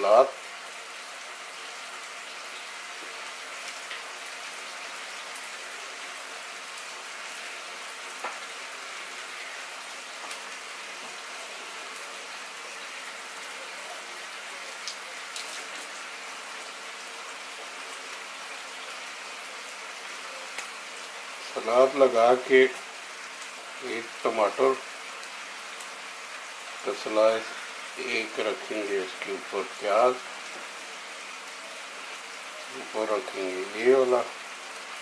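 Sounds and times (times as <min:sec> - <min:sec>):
steady even hiss: 0:21.1 - 0:35.0.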